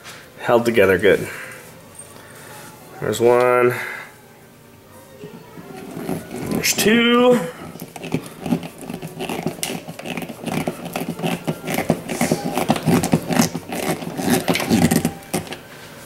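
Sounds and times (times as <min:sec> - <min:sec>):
anchor screwing into drywall: 0:05.7 - 0:06.9, 0:07.5 - 0:15.6.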